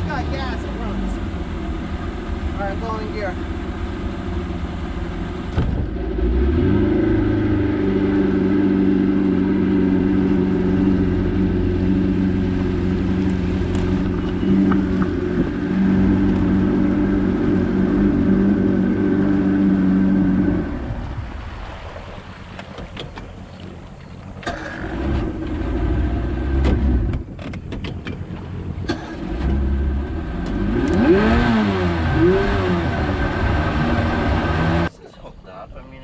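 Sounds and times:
motorboat engine: 0.0 - 35.4.

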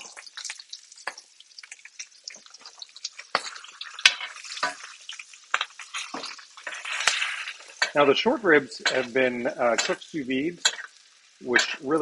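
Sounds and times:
meat sizzling in a pan: 0.0 - 12.0
spoon scraping and clinking pan: 3.2 - 11.9.

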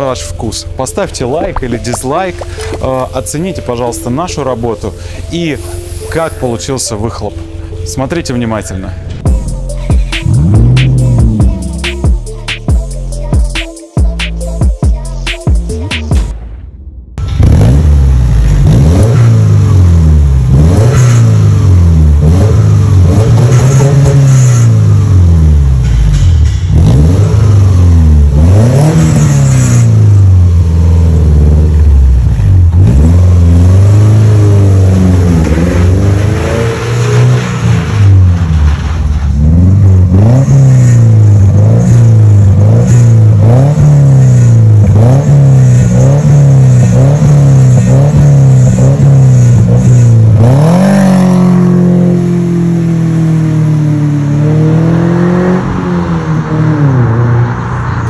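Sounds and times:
car engine revving: 8.9 - 12.3, 16.3 - 58.0.

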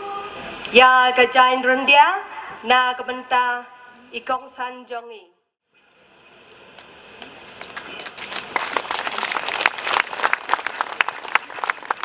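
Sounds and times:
audience applauding: 7.6 - 12.0.

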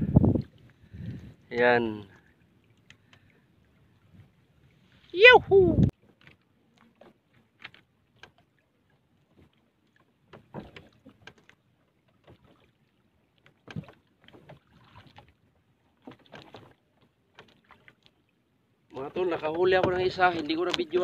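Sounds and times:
water splashes: 0.0 - 21.0
knocks and clicks on wooden boat: 6.0 - 8.5, 9.3 - 12.6, 13.4 - 15.3, 16.0 - 18.1, 19.2 - 21.0.

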